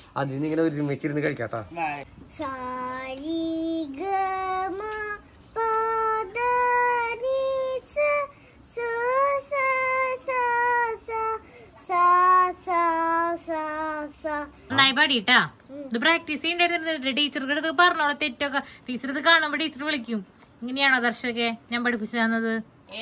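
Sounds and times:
boy singing unaccompanied: 2.2s - 14.8s.

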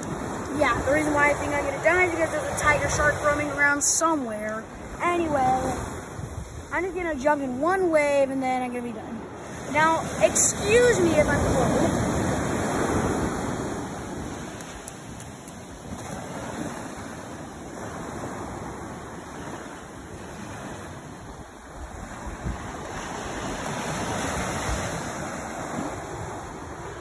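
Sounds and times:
ocean surf breaking on beach: 0.0s - 27.0s.

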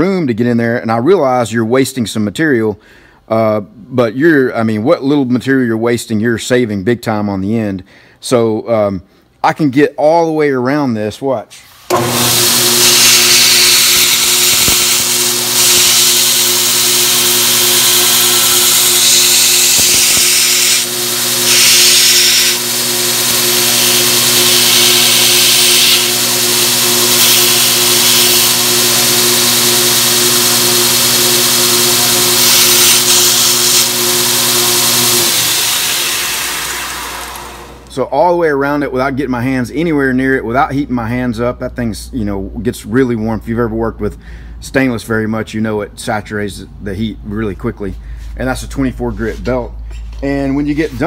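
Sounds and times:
metal grinding hiss: 11.7s - 30.3s, 31.1s - 37.3s
sander winding down: 11.8s - 38.0s
belt sander motor hum: 11.9s - 37.9s.

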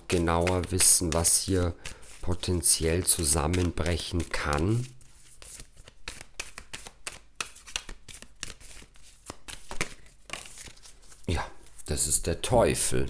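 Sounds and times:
cards being shuffled: 0.0s - 11.9s.

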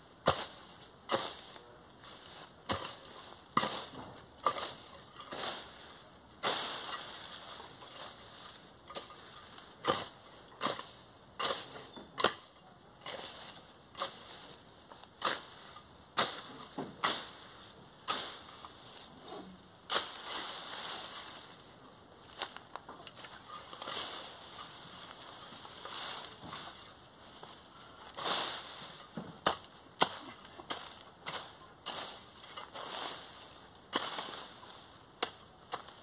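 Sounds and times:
rustling of cut vegetation: 0.1s - 36.0s
hoe chopping into brush and soil: 0.2s - 21.6s, 22.2s - 36.0s.

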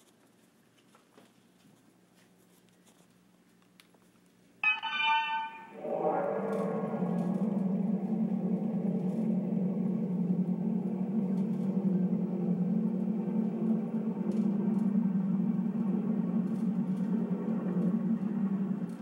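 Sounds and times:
faint held tones: 4.6s - 17.2s
low droning hum: 5.4s - 19.0s.

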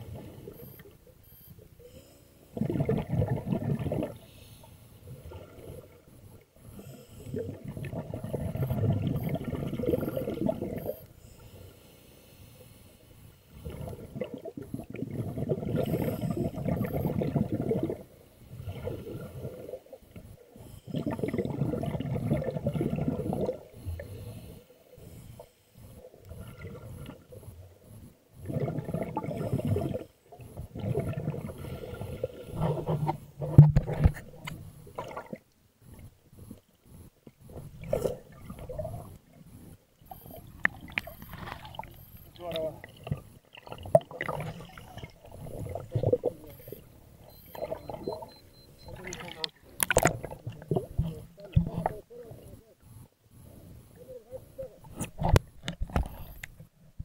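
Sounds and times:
underwater exhaled bubbles bursting: 2.6s - 4.3s, 5.1s - 6.1s, 7.2s - 11.0s, 13.6s - 20.0s, 20.9s - 24.0s, 26.2s - 27.4s, 28.4s - 35.4s, 37.6s - 39.3s, 40.2s - 46.9s, 47.5s - 52.5s.

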